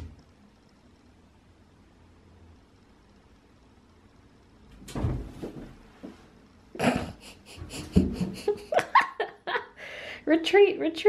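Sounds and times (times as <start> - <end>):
thud of kitten pouncing: 4.8 - 5.7
breathy laughter: 6.8 - 9.8.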